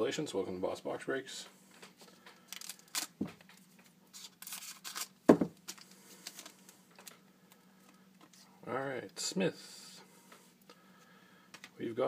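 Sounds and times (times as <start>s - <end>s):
foil wrapper crinkling: 2.1s - 3.5s, 4.1s - 7.2s
thump: 5.3s - 5.5s.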